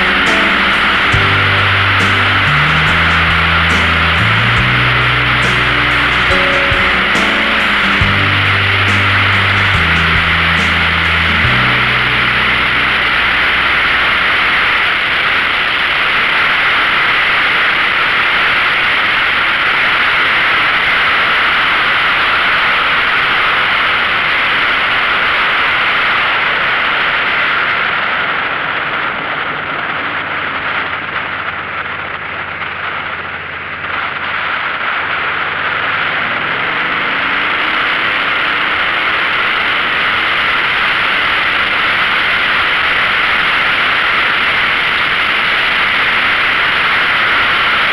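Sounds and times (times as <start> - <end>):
motorcycle engine: 0.0 - 16.0.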